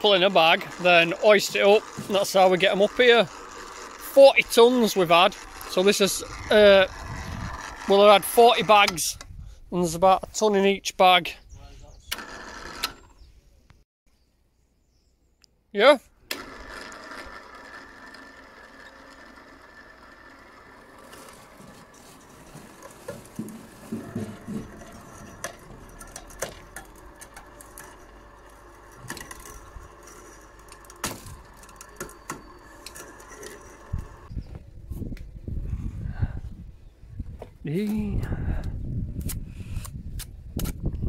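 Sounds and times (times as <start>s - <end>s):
motor hum: 0.0s - 9.4s, 12.0s - 13.2s, 16.2s - 34.6s.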